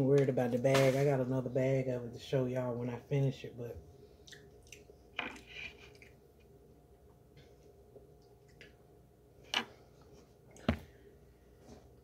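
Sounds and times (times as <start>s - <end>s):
chewing crunchy food: 4.2s - 6.2s.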